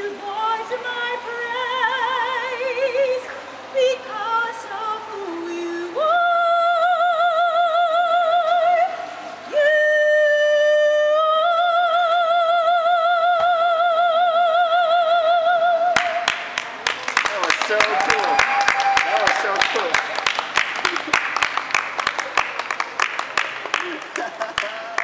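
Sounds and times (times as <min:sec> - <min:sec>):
woman singing operatically: 0:00.0 - 0:16.3.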